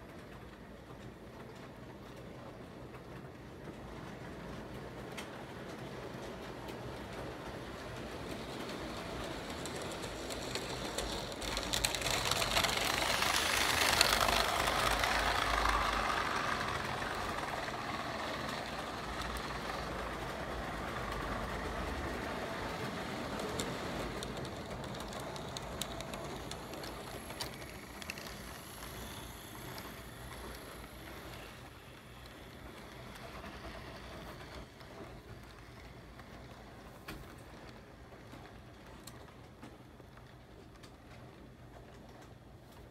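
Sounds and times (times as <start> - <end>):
model train wheels rumbling on rails: 0.0 - 42.9.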